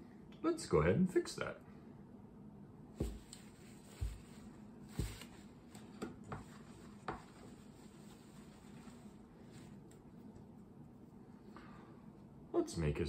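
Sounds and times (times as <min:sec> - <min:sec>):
paper towel wiping whiteboard: 0:03.0 - 0:09.8.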